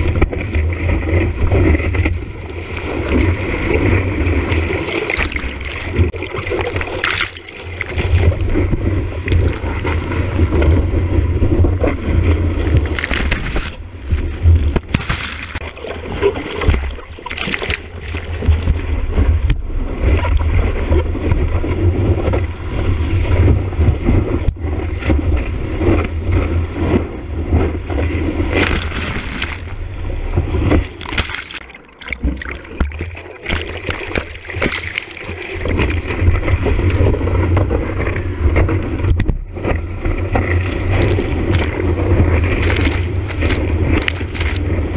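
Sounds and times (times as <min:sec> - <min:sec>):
water splashes: 0:00.0 - 0:23.4, 0:24.9 - 0:44.9
rushing wave water: 0:00.0 - 0:44.9.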